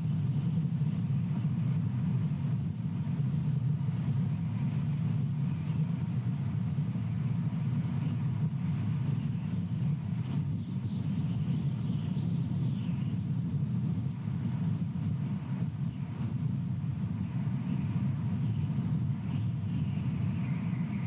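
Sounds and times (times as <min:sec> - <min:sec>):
wind buffeting microphone: 0:00.0 - 0:21.0.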